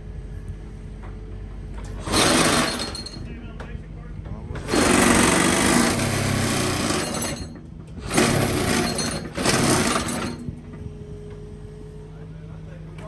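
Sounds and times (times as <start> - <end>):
excavator engine humming: 0.0 - 13.0
vibratory hammer rattling on piling: 2.0 - 3.2, 4.6 - 10.6.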